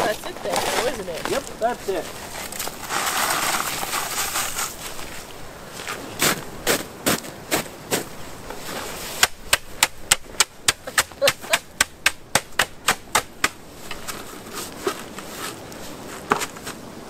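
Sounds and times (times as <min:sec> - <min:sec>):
shovel slapping packed snow: 0:02.4 - 0:05.2.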